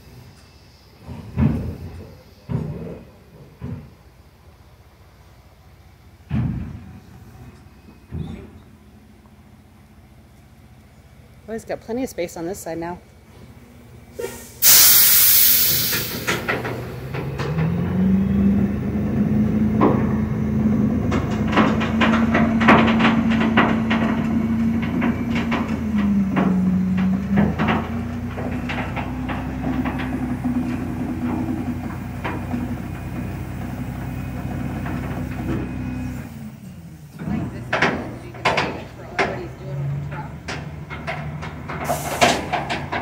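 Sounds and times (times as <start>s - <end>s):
truck engine revving: 13.3s - 43.0s
air brake hiss: 14.1s - 16.7s, 41.8s - 42.5s
metallic clanks and knocks: 19.7s - 35.7s, 37.2s - 43.0s.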